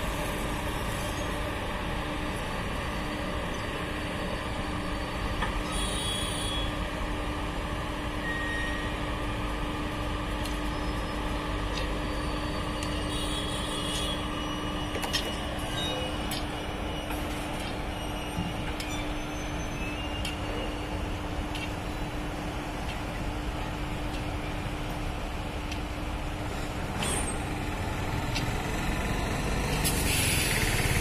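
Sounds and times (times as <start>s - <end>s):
electric locomotive humming: 0.0s - 31.0s
high-pitched wheel squeals: 4.8s - 6.8s, 8.2s - 9.0s, 12.0s - 15.0s, 16.8s - 21.0s
sharp clicks from wheels: 28.2s - 28.6s.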